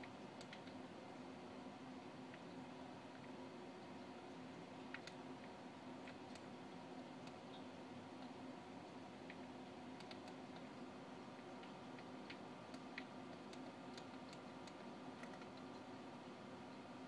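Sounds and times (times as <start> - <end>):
faint small clicks: 0.0 - 0.8, 4.9 - 6.5, 10.0 - 10.7, 11.4 - 15.9
steady low hum: 0.0 - 17.0.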